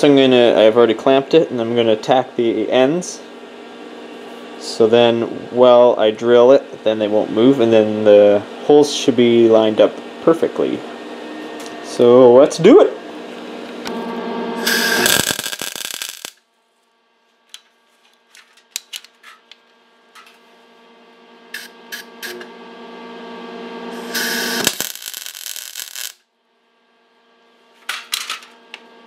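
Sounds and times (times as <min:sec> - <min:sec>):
welder crackling: 0:14.6 - 0:16.4, 0:23.9 - 0:26.2.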